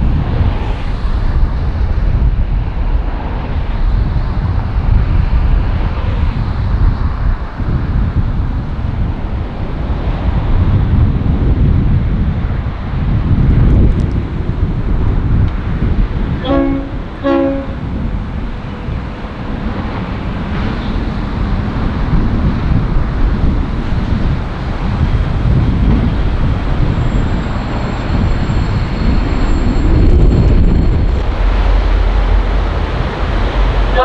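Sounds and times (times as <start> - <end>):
diesel locomotive engine rumble: 0.0 - 34.0
locomotive horn blasts: 16.4 - 18.0.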